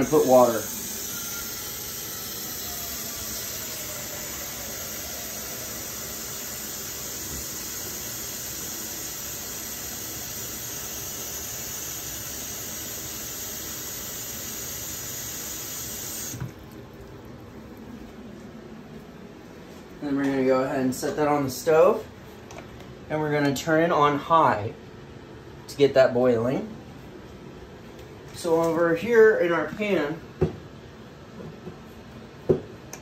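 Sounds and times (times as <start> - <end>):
tap water running into saucepan: 12.7 - 17.7.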